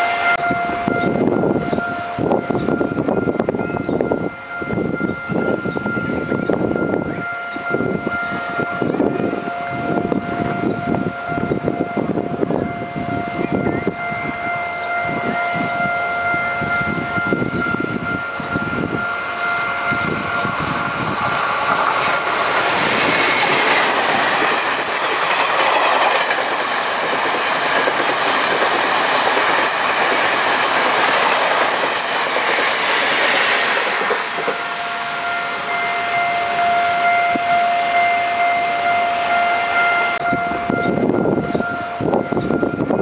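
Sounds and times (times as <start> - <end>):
level crossing warning bell: 0.0 - 43.0
loud rushing rail noise: 0.0 - 43.0
train wheels clattering over rail joints: 19.5 - 34.7.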